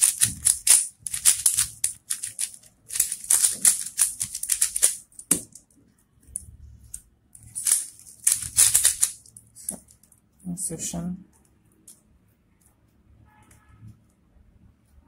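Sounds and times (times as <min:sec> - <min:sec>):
speed cube layers clicking: 0:00.0 - 0:05.6, 0:07.4 - 0:10.1.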